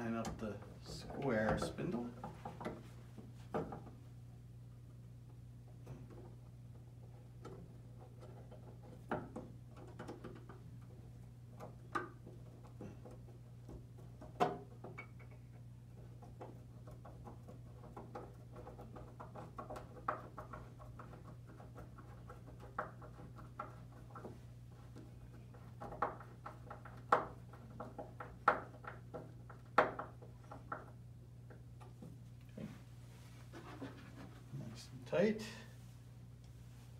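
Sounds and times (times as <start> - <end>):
steady low hum: 10.5 - 36.9.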